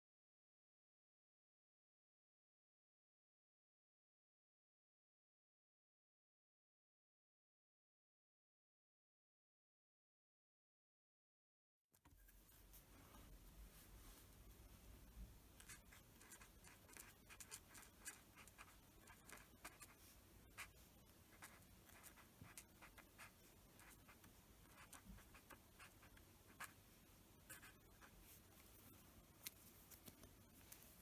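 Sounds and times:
pen scratching on paper: 15.6 - 26.8, 27.5 - 28.2.

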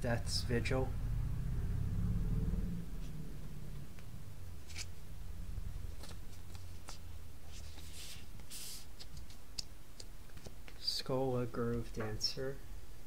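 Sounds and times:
steady low hum: 0.0 - 8.6
card and binder pages rustling: 4.6 - 5.0, 5.8 - 9.4.

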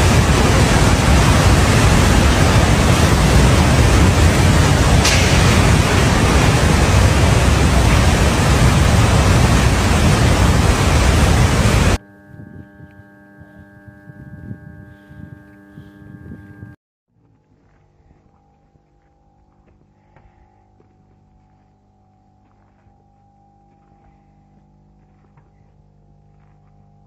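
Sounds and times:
flood torrent rushing: 0.0 - 12.0
faint steady hum: 0.0 - 27.0.

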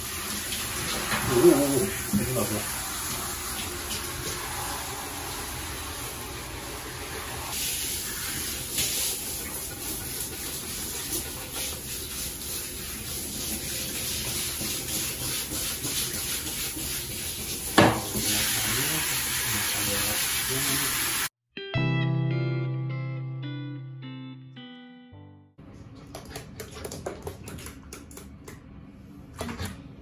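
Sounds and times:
shower spraying water on dog: 0.0 - 21.3.

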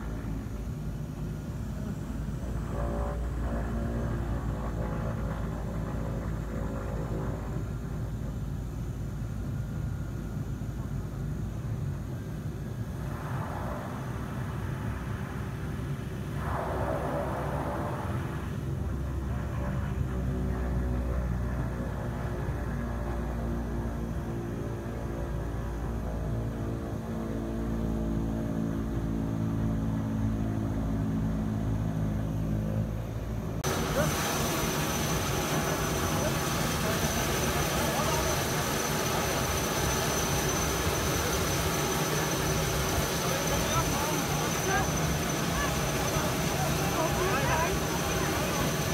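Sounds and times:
faint high steady whine: 0.0 - 48.9
turboprop plane engines rumbling: 0.0 - 48.9
rushing noise: 12.6 - 19.7, 33.6 - 48.9
voices: 33.6 - 48.9.

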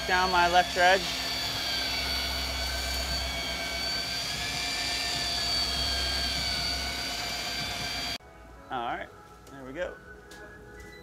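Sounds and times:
boat engine droning: 0.0 - 8.2
high whine: 0.0 - 8.2.

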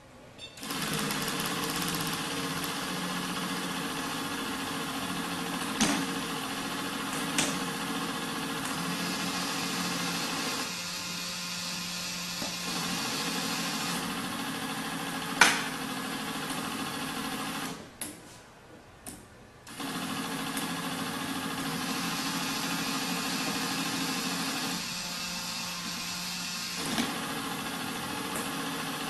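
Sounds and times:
small electric motors whirring: 5.2 - 14.1, 19.7 - 29.0.

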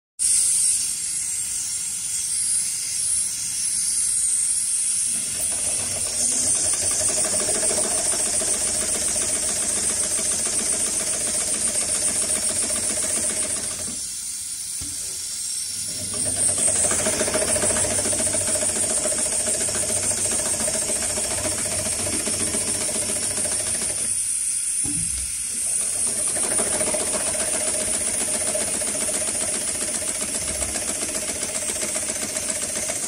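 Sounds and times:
industrial sewing machine stitching: 5.1 - 14.1, 15.8 - 24.2, 25.5 - 33.0
steady high hiss: 14.0 - 16.0.

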